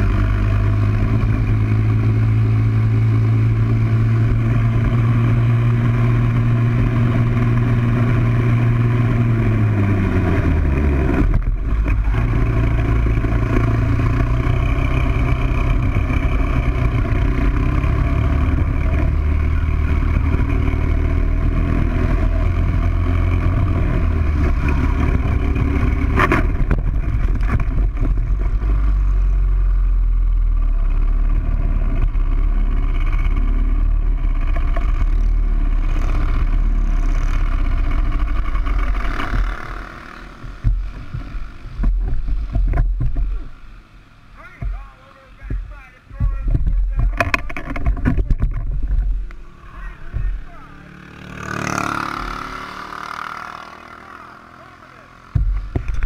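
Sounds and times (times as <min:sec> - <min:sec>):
wind noise: 0:00.0 - 0:29.2, 0:45.4 - 0:50.5
kart engine running: 0:00.0 - 0:56.0
kart rumbling on grass: 0:00.0 - 0:56.0.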